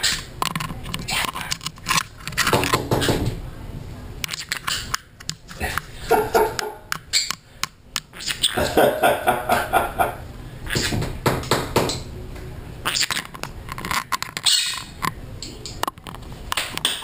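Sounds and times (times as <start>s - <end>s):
bird chattering: 8.1s - 8.8s, 12.8s - 13.3s.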